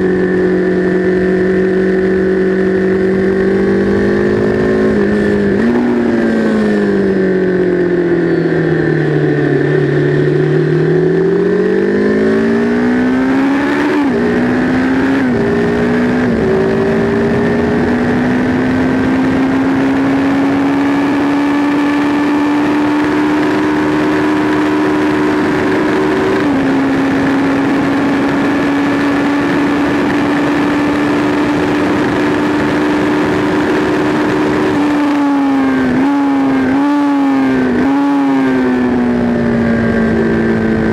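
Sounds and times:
motorcycle engine at speed: 0.0 - 40.9
quick gear upshifts: 0.0 - 40.9
wind noise: 0.0 - 40.9.

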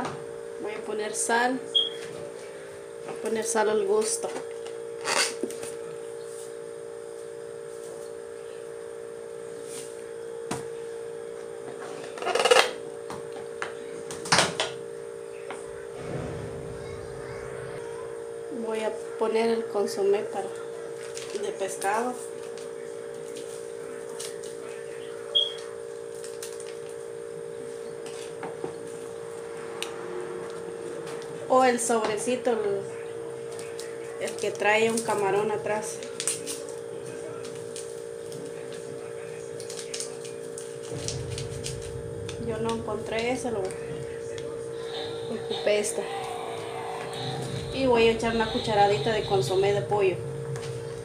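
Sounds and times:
steady hum: 12.8 - 24.0, 36.6 - 51.0.

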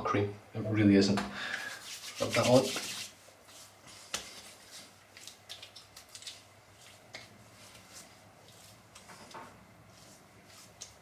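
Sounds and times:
hands rubbing wet skin: 1.6 - 9.1, 9.9 - 11.0.

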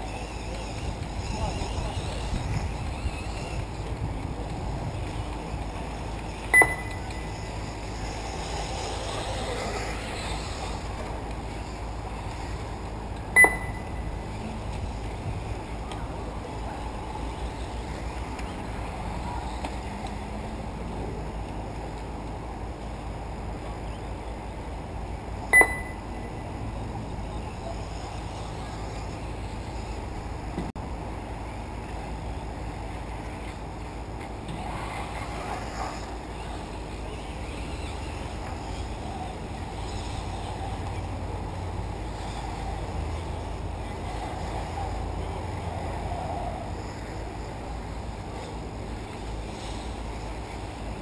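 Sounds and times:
low background noise: 0.0 - 51.0
rc buggies motor and tyre noise: 0.0 - 51.0
high-pitched electronic beep: 6.5 - 7.3, 13.4 - 14.2, 25.5 - 26.4.

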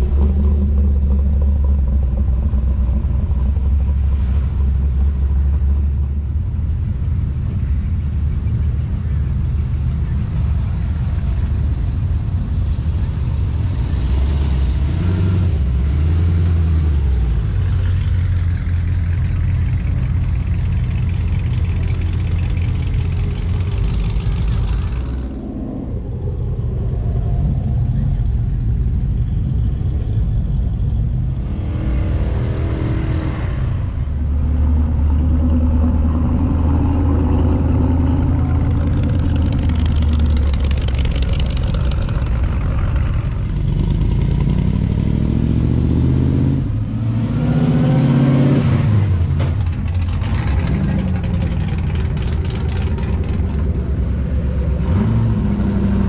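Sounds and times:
car engines revving: 0.0 - 56.0.

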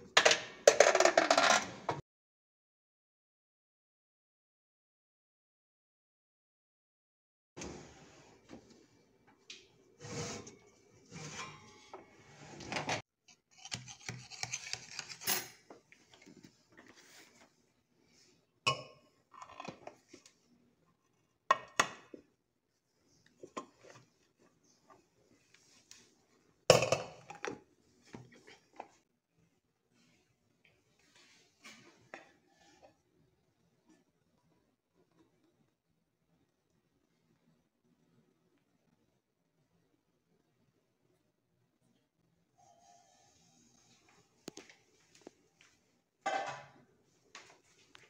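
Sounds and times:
metal utensils scraping cake pan: 10.0 - 13.0.

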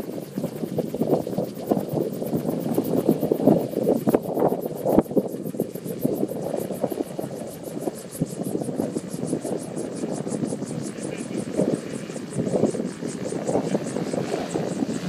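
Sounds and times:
engine running: 10.2 - 15.0.

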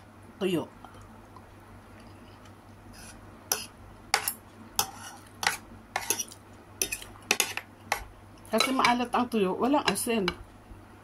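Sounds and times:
cutlery clinking against a plate: 3.5 - 9.0.

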